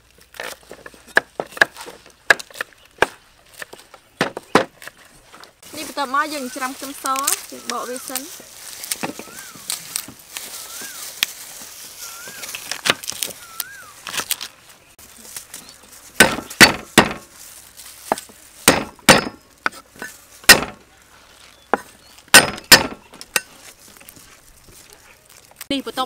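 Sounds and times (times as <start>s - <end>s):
cleaver knocking on chopping block: 16.2s - 17.2s, 20.5s - 20.8s.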